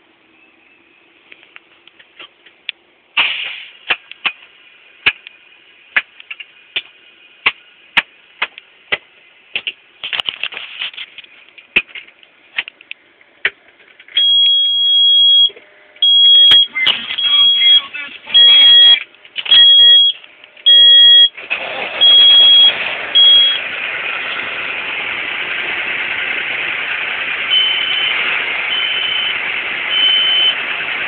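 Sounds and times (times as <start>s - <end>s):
dashboard warning buzzer: 14.2s - 21.4s, 22.0s - 23.6s, 27.5s - 30.6s.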